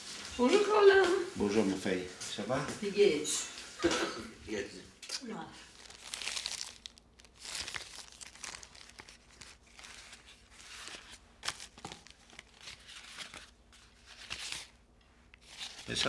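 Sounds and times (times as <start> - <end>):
plastic bags crinkling: 5.6 - 14.8.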